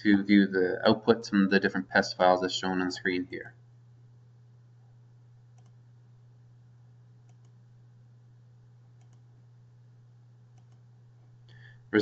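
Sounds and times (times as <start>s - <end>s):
low electrical hum: 0.0s - 12.0s
faint computer mouse clicks: 5.5s - 5.8s, 7.2s - 7.6s, 9.0s - 9.3s, 10.5s - 10.9s.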